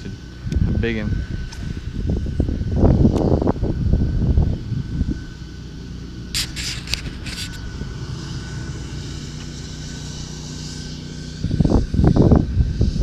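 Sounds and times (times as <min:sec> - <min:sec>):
engine droning low: 0:00.0 - 0:13.0
short hissing bursts: 0:06.3 - 0:13.0.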